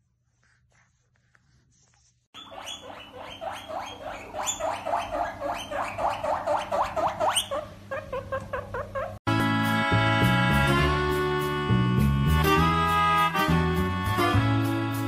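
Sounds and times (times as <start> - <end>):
guinea pig squealing: 2.4 - 9.2.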